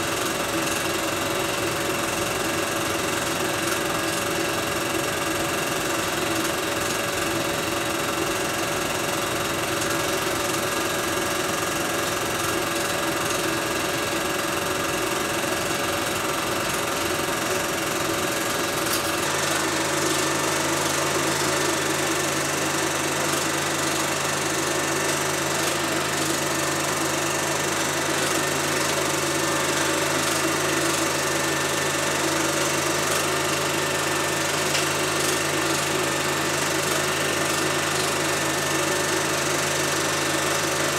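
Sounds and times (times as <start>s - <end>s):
film projector whirring and clattering: 0.0s - 40.9s.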